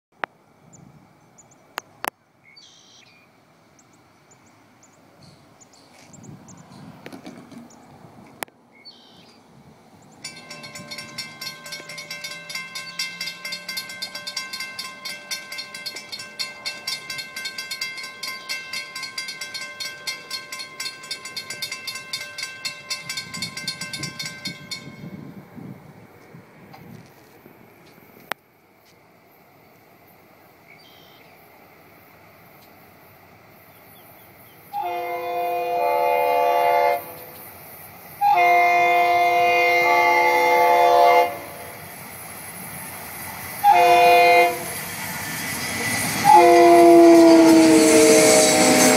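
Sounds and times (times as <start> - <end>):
railroad crossing bell clanging: 10.2 - 25.5, 38.3 - 48.9.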